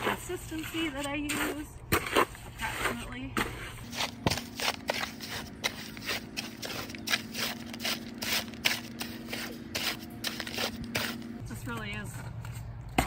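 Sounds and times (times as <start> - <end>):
hoe scraping wet concrete: 0.0 - 13.0
steady low hum: 0.0 - 13.0.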